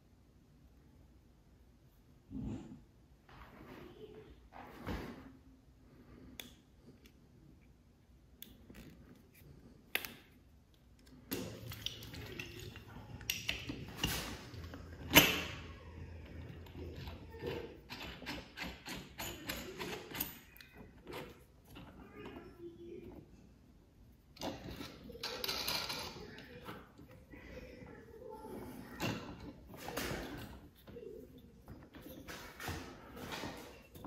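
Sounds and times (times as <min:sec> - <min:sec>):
metal tools clinking and tapping: 0:11.3 - 0:21.9.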